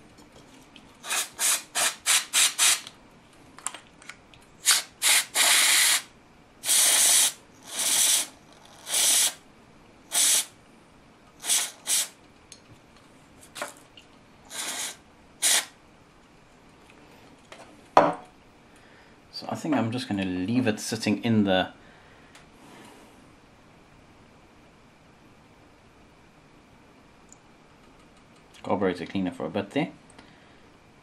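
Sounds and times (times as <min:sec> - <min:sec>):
aerosol can spraying: 0:01.0 - 0:02.8, 0:04.6 - 0:09.4, 0:10.1 - 0:10.5, 0:11.4 - 0:12.2, 0:14.5 - 0:15.7.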